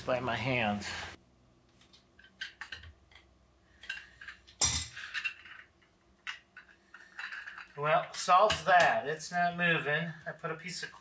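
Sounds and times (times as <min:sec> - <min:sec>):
metal tools clinking: 0:03.8 - 0:08.8.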